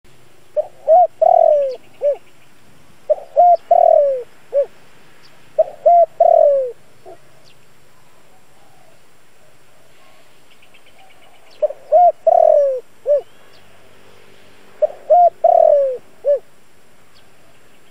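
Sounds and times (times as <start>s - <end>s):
dove cooing: 0.6s - 2.2s, 3.1s - 4.7s, 5.6s - 7.4s, 11.0s - 13.4s, 14.8s - 16.5s.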